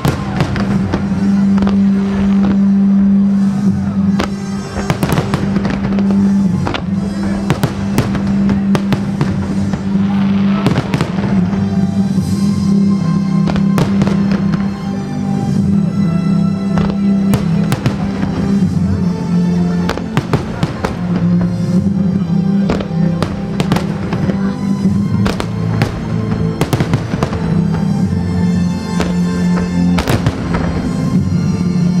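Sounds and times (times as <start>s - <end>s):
fireworks bursting with bangs: 0.0s - 32.0s
fireworks crackling: 0.0s - 32.0s
loud music with low note: 0.0s - 32.0s.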